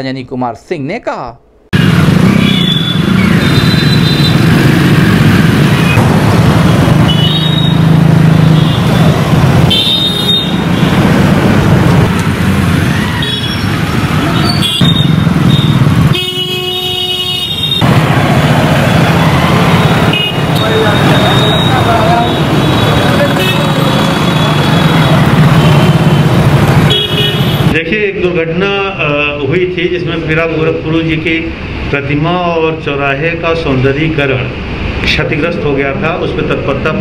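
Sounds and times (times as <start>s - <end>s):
car and motorcycle engines passing: 1.8s - 16.4s, 17.8s - 27.8s
car horn toots: 9.7s - 10.8s, 14.4s - 17.9s, 19.8s - 26.3s, 26.9s - 27.8s.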